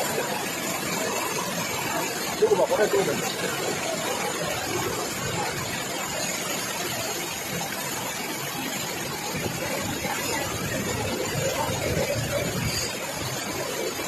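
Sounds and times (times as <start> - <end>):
floodwater flowing across stone floor: 0.0 - 14.0
heavy rain: 0.0 - 14.0.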